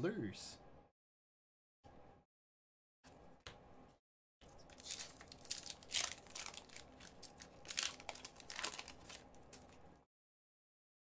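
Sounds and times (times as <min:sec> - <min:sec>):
card pack wrapper tearing and crinkling: 0:04.5 - 0:09.8.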